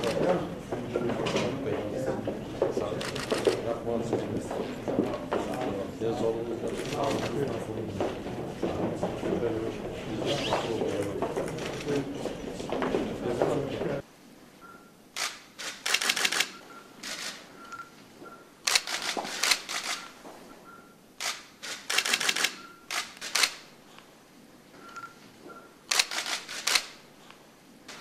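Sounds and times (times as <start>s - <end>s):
camera shutters clicking: 3.0s - 3.6s, 6.7s - 7.4s, 15.2s - 17.4s, 18.6s - 20.2s, 21.2s - 23.7s, 25.9s - 27.0s.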